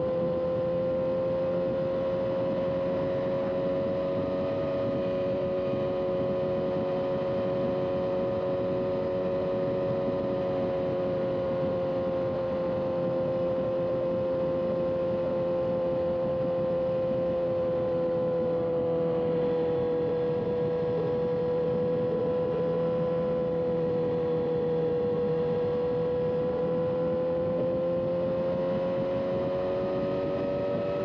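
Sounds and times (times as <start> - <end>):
motorcycle engine cruising: 0.0 - 31.0
road and wind noise: 0.0 - 31.0.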